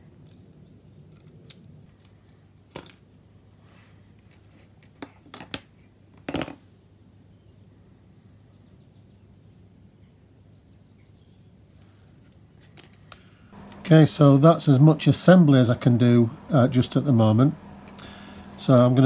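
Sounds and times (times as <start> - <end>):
low steady hum: 5.7 - 19.0.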